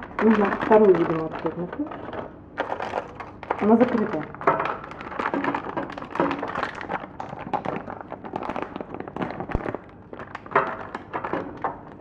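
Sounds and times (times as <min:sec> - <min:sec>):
flour packet crinkling: 0:00.0 - 0:12.0.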